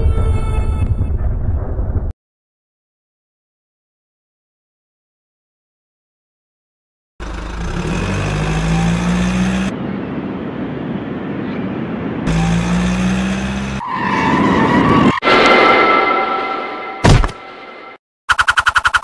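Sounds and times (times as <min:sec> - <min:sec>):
car engine revving: 0:07.2 - 0:09.7, 0:12.3 - 0:13.8
tyres skidding: 0:07.2 - 0:09.7, 0:12.3 - 0:15.6
high squeal: 0:13.6 - 0:18.0.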